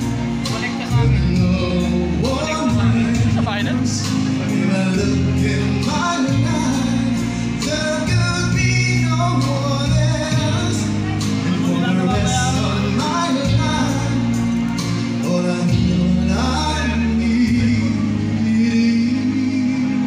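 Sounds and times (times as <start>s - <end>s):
live band playing: 0.0s - 20.0s
man singing: 0.0s - 20.0s.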